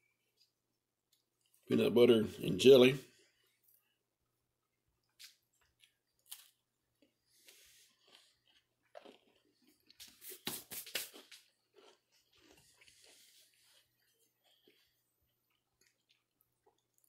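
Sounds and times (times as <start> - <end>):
crunching cracker bites: 5.0 - 13.2.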